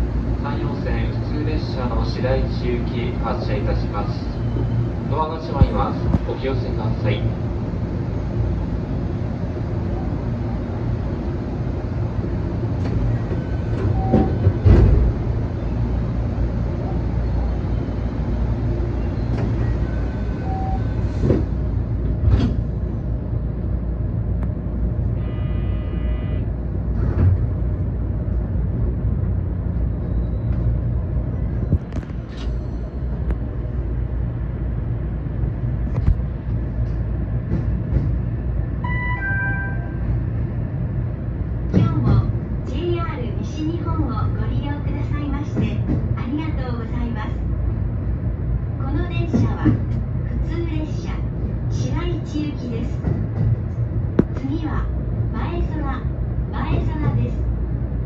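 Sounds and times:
train cab hum and rumble: 0.0s - 58.0s
brief buzzing tone: 25.2s - 26.5s.

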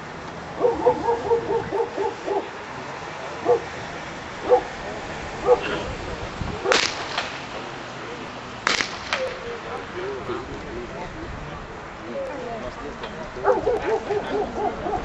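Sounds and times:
dog barking: 0.6s - 2.6s, 3.4s - 3.7s, 4.4s - 4.8s, 5.4s - 5.8s, 13.4s - 15.0s
sharp crack: 6.6s - 7.8s, 8.5s - 9.7s.

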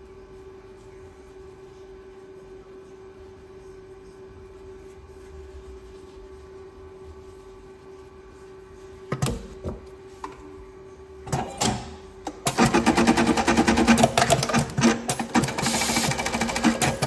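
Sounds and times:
machine clicks and clunks: 11.3s - 17.0s
sewing machine rattling: 12.5s - 17.0s.

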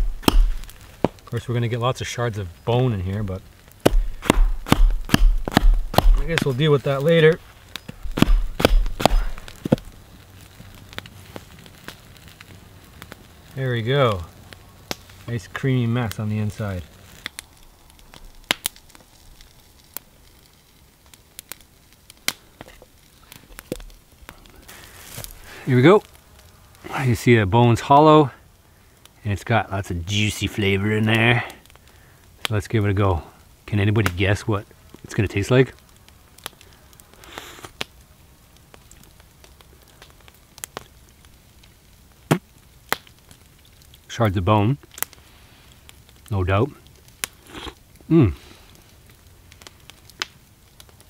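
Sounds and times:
bone cracking apart: 0.0s - 0.8s, 3.8s - 6.5s, 7.8s - 10.0s, 46.8s - 48.2s
mouth smacks: 47.4s - 48.5s.

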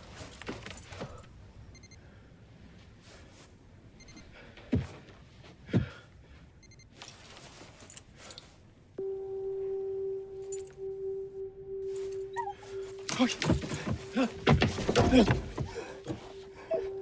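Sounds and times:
steady humming tone: 9.0s - 17.0s.

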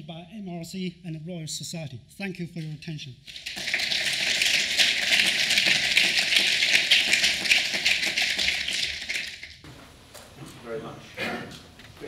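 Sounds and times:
audience applauding: 3.3s - 9.4s.

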